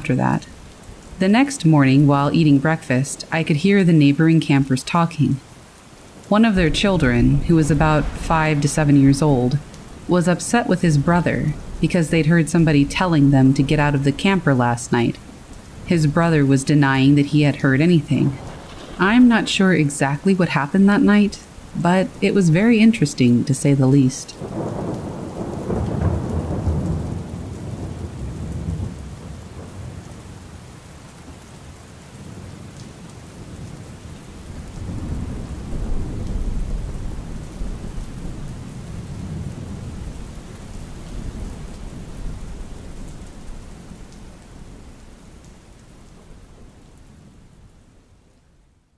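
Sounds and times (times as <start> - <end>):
rain falling: 0.0 - 48.9
low rolling thunder: 6.5 - 20.3, 24.4 - 30.7, 33.4 - 44.9.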